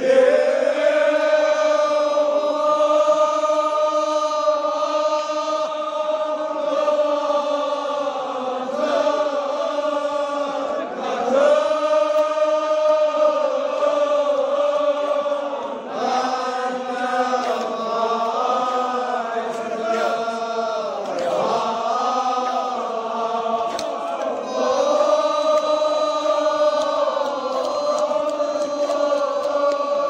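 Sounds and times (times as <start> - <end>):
men chanting together: 0.0 - 30.0.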